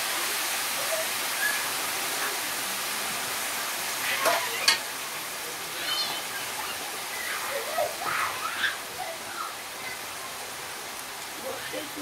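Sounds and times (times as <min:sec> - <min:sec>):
hissing and sizzling in pan: 0:03.9 - 0:05.1.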